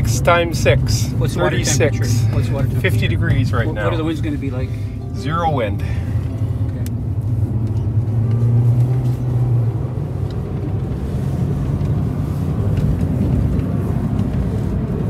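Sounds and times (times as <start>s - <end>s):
engine and road hum: 0.0s - 15.0s
tyre noise on paved road: 6.6s - 15.0s.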